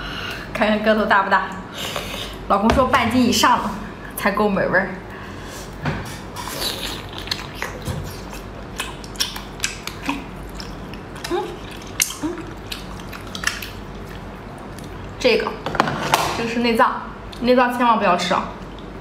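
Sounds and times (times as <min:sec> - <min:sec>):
wet chewing clicks and smacks: 0:06.7 - 0:15.2.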